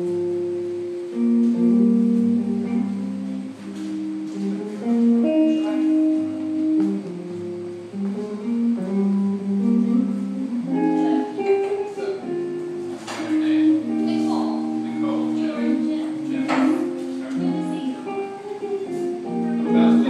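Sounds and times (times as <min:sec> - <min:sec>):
acoustic guitar melody: 0:00.0 - 0:20.0.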